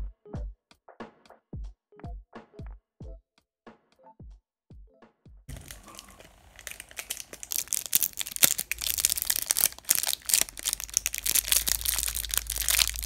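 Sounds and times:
crinkly candy wrapper unwrapped: 5.5s - 13.0s.

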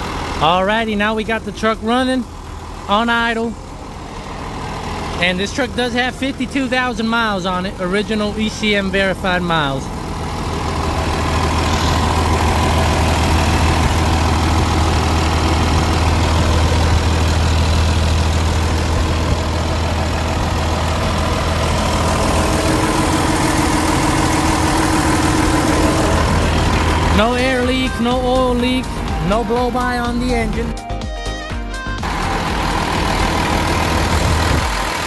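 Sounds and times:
diesel engine idling: 0.0s - 35.0s.

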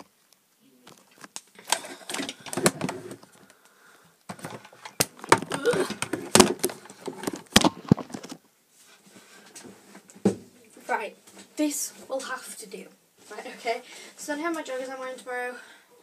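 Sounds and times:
phone handling rustles and scrapes: 0.9s - 3.4s, 4.3s - 8.4s.

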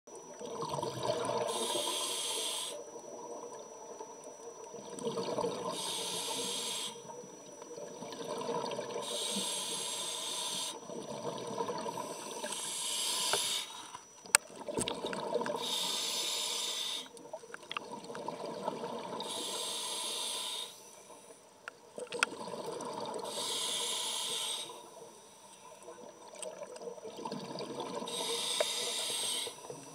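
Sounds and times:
exhaled bubbles rumbling: 0.2s - 1.6s, 3.0s - 5.8s, 7.4s - 9.1s, 10.8s - 12.4s, 14.4s - 15.6s, 17.2s - 19.3s, 22.0s - 23.3s, 25.9s - 28.3s
regulator inhale hiss: 1.4s - 2.8s, 5.6s - 7.1s, 9.0s - 10.9s, 11.9s - 14.0s, 15.6s - 17.2s, 19.2s - 21.5s, 23.2s - 25.7s, 28.1s - 29.9s.

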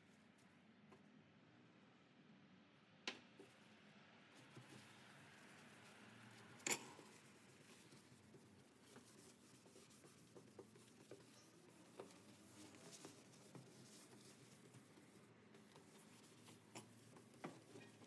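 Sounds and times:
paper towel rubbing on steel: 4.4s - 18.0s.

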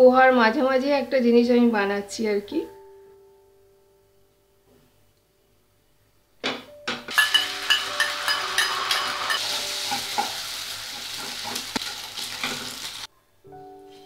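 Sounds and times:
spatula tapping and scraping pan: 7.0s - 12.9s
egg sizzling in hot oil: 7.1s - 13.1s.

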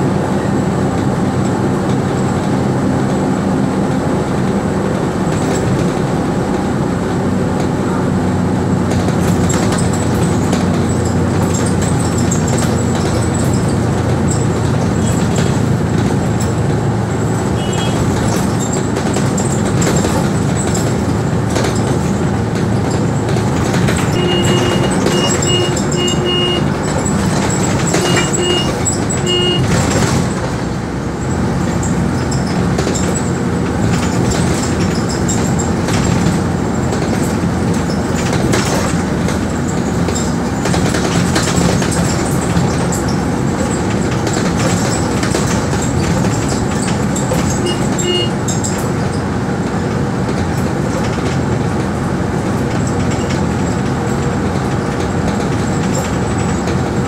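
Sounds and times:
bus engine running: 0.0s - 57.0s
rattling bus body and windows: 0.0s - 57.0s
road and wind noise: 0.0s - 57.0s
short beeps: 24.2s - 26.7s, 27.9s - 29.7s, 47.6s - 48.3s.

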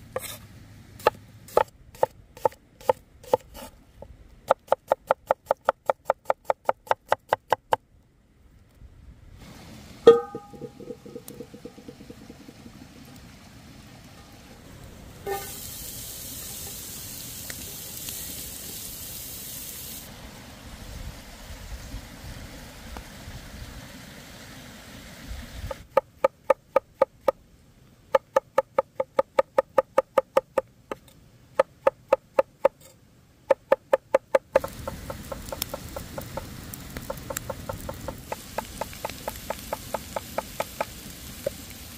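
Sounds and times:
cleaver chopping on wooden board: 1.0s - 3.7s
sharp metallic clank: 10.1s - 11.7s
onions sizzling in skillet: 15.2s - 20.1s, 34.6s - 41.9s.

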